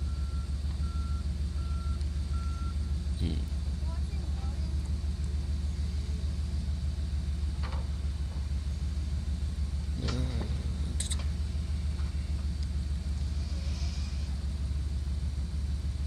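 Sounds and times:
log loader engine rumbling: 0.0 - 16.0.

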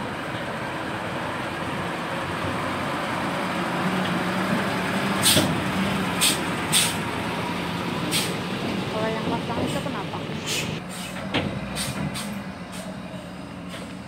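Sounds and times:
truck diesel engine running: 0.0 - 14.0
short hisses: 6.2 - 7.0.

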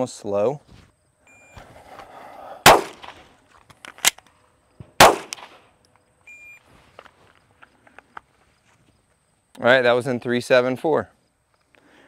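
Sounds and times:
pistol shot: 2.6 - 3.2, 5.0 - 5.7
short electronic beep: 6.3 - 6.6.

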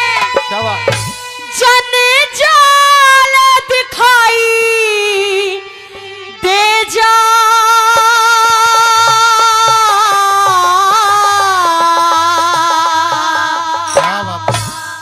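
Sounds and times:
drum strokes: 0.0 - 1.8, 7.7 - 15.0.

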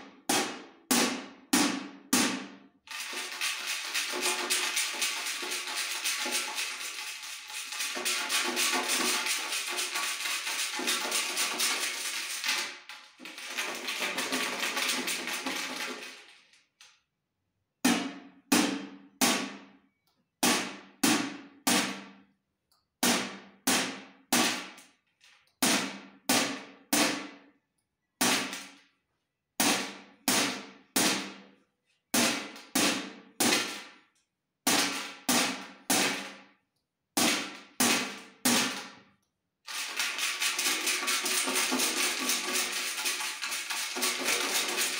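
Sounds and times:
hand striking metal tin: 2.9 - 16.3, 39.7 - 44.9
metal tin shaken as rattle: 2.9 - 16.7, 39.7 - 44.9.

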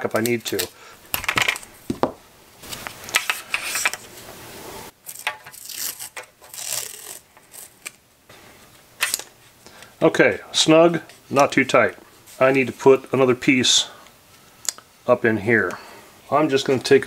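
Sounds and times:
tape rustling: 0.0 - 4.2, 5.0 - 8.0
masking tape ripping off roll: 5.0 - 8.0.

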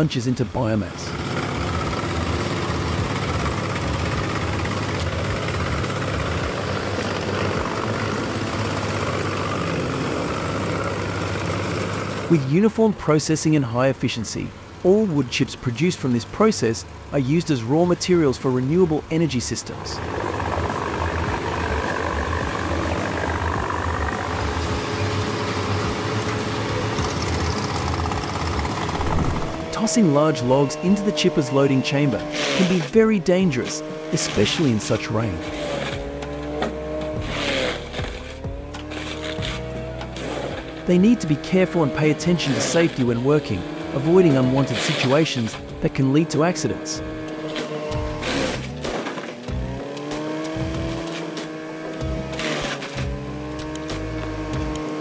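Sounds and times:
wood chipper engine droning: 0.8 - 12.4, 18.3 - 55.0
branches being chipped: 52.2 - 55.0.

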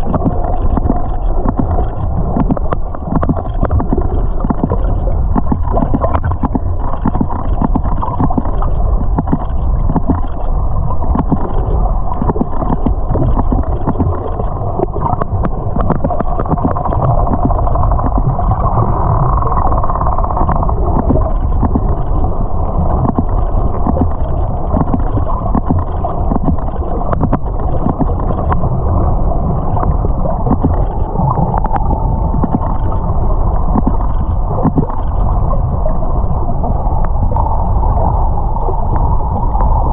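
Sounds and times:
dolphin clicks: 0.0 - 22.3, 22.9 - 28.6, 30.4 - 35.3
underwater water rush: 0.0 - 39.9.

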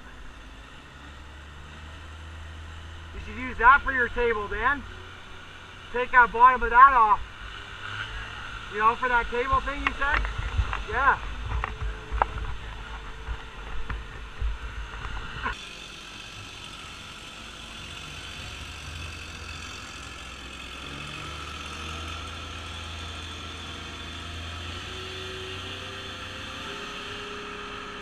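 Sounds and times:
drone motors whirring: 0.0 - 28.0
wind rumble: 9.2 - 15.6.

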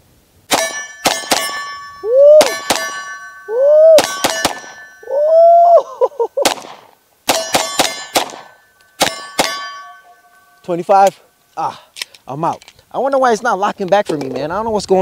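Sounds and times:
pistol shots: 0.5 - 1.6, 4.0 - 4.9, 6.4 - 9.8
metallic ring of steel targets: 0.5 - 5.2, 7.3 - 11.2.

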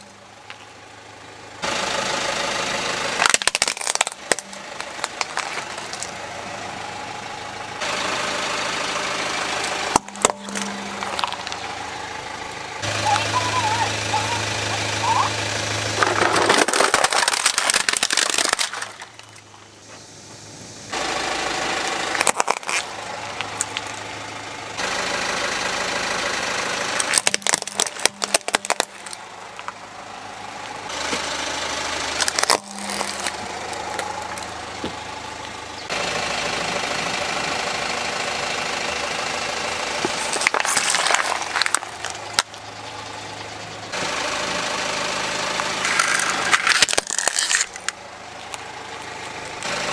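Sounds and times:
car engine idling: 0.0 - 49.9
plastic toys cracking and crunching: 3.2 - 6.2, 9.6 - 11.7, 15.8 - 19.7, 22.0 - 24.0, 26.9 - 29.8, 32.0 - 35.0, 40.0 - 42.6, 45.6 - 49.9.

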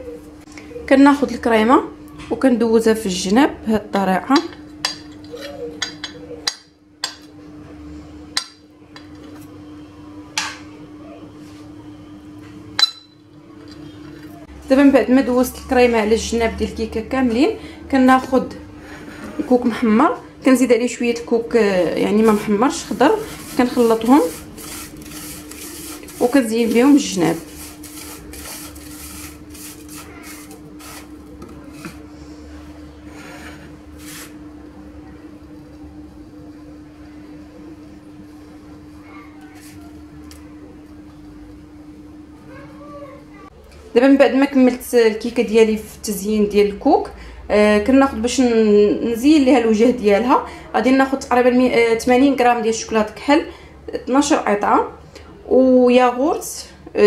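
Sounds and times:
steady low hum: 0.0 - 57.0
dry rustling scrapes in bowl: 21.8 - 32.4, 33.1 - 34.4, 39.4 - 40.1.

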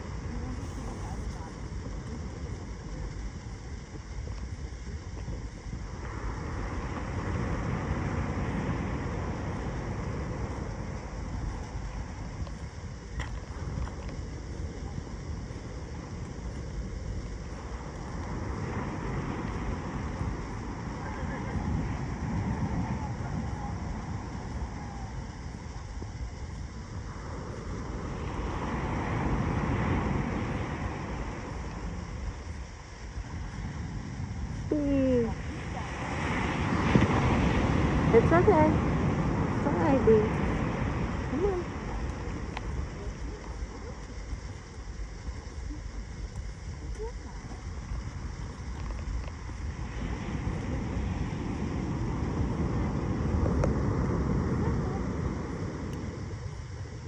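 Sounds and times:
wind buffeting microphone: 0.0 - 57.0
ocean surf: 6.0 - 13.3, 17.1 - 25.4, 26.5 - 45.1, 49.0 - 57.0.

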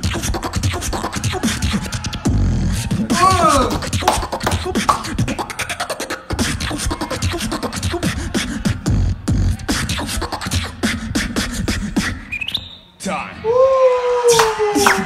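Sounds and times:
beatboxing into a microphone: 0.0 - 12.7.

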